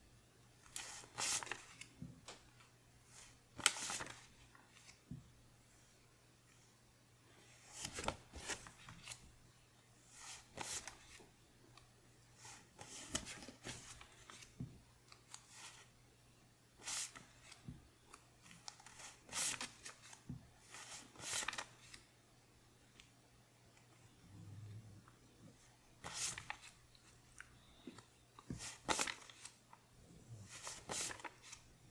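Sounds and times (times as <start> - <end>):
paper bills rustling and snapping: 0.8 - 1.9, 21.0 - 22.0, 28.6 - 29.6, 30.5 - 31.7.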